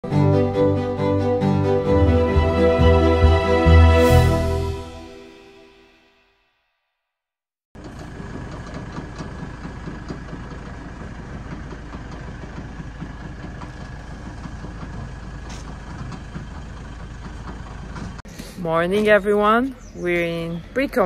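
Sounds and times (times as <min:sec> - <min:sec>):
engine running steadily: 0:07.8 - 0:21.0.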